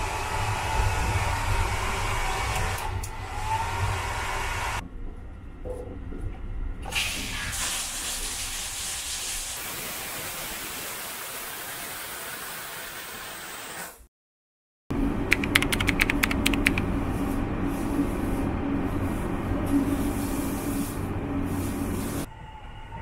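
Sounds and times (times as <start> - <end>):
water spraying hiss: 7.2 - 13.6
train running noise: 15.1 - 23.0
quick clicks: 15.3 - 16.8.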